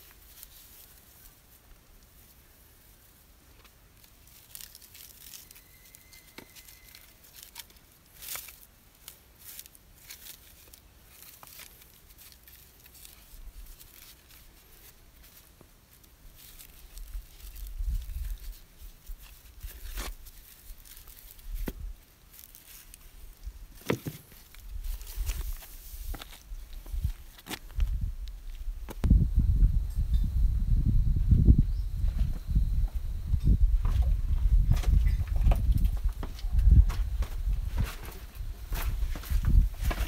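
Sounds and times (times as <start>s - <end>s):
footsteps through dry leaves: 0.0s - 3.3s, 4.0s - 28.7s, 36.7s - 40.0s.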